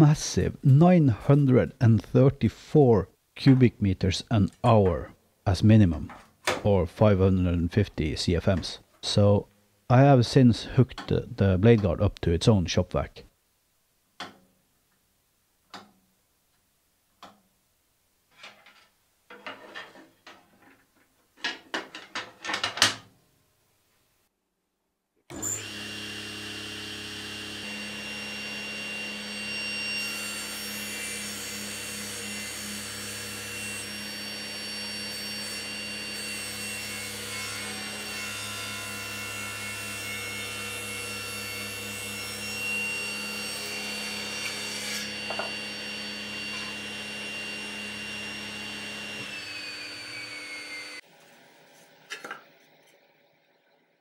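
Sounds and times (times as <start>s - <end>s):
saw blade cutting wood: 25.3s - 51.0s
table saw motor running: 25.3s - 51.6s.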